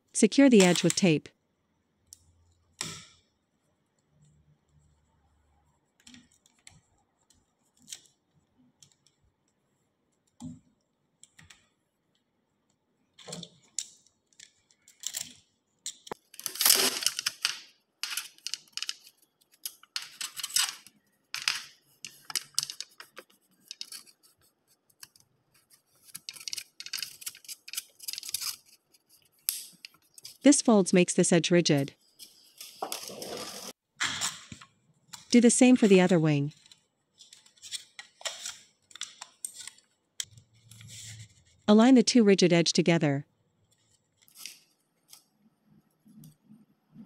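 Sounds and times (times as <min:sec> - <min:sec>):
aluminum sheet crinkling: 0:13.2 - 0:30.5, 0:32.0 - 0:41.5, 0:43.6 - 0:45.3.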